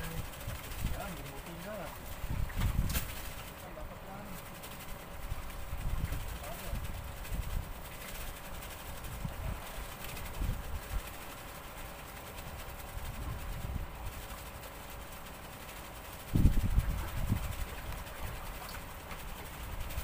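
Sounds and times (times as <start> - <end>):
wind buffeting microphone: 0.0 - 3.6, 4.9 - 11.2, 12.8 - 14.4, 16.2 - 20.0.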